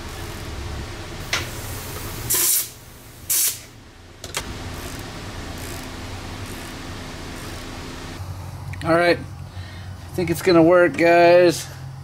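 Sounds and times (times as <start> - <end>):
steady low hum: 0.0 - 12.0
compressed air blasts: 1.2 - 3.8.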